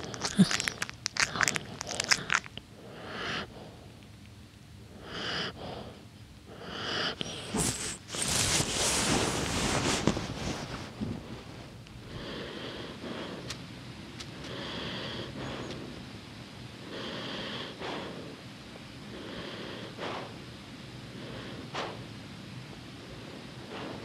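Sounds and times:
dog lip-smacking: 0.0s - 2.7s
dog breathing through nose: 0.0s - 4.0s, 5.0s - 13.6s, 14.3s - 16.0s, 16.8s - 18.4s, 19.1s - 22.2s, 23.0s - 24.0s
nylon jacket rustling: 7.7s - 11.0s.

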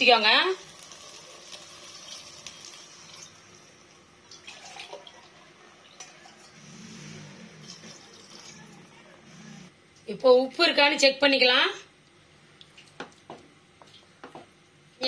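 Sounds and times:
water pouring into pot: 0.6s - 3.5s, 4.2s - 6.6s, 7.6s - 8.6s.

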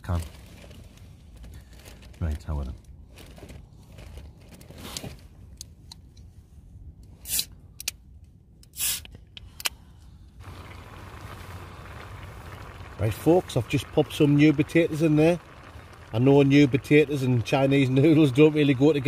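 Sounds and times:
steady hiss: 10.4s - 19.0s.

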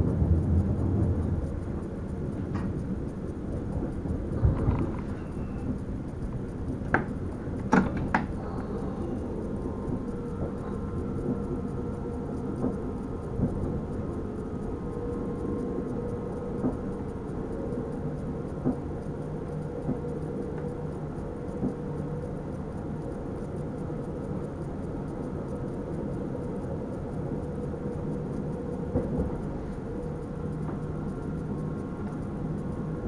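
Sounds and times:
electric train rumbling: 0.0s - 33.0s
low hum: 0.0s - 33.0s.

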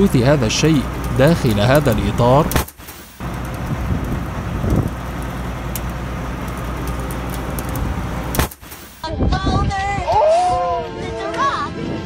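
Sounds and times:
combine harvester engine rumbling: 0.0s - 9.1s
sharp click: 2.5s - 3.0s.

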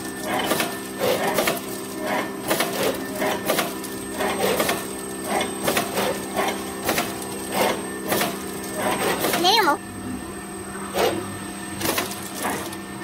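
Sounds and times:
mechanical clicks and clatter: 0.0s - 9.6s, 11.8s - 12.9s
machine motor hum: 0.0s - 13.0s.

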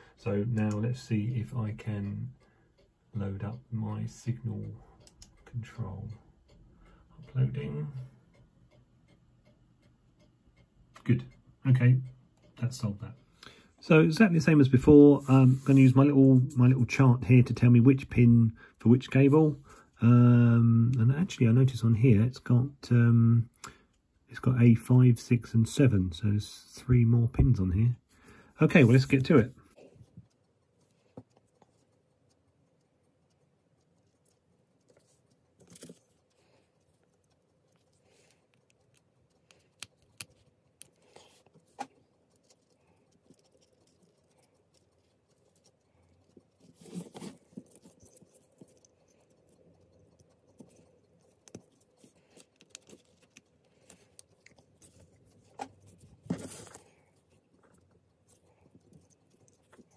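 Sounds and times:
rustling: 28.8s - 59.9s.

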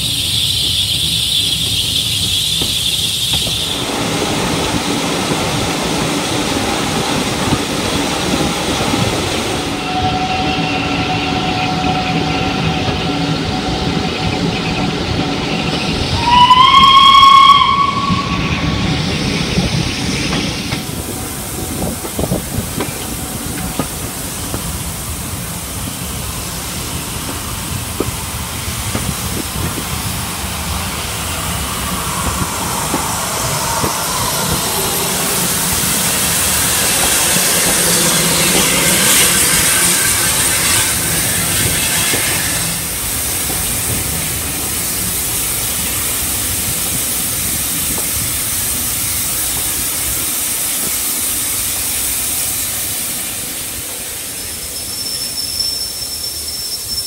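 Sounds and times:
train wheels clicking over rail joints: 0.0s - 9.7s, 10.5s - 55.4s
steam locomotive whistle: 9.6s - 19.4s, 31.2s - 42.9s.

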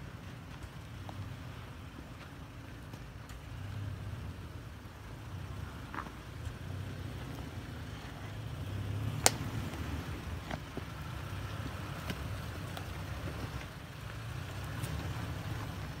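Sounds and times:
pickup engine running low: 0.0s - 16.0s
sharp crack: 9.0s - 10.9s.

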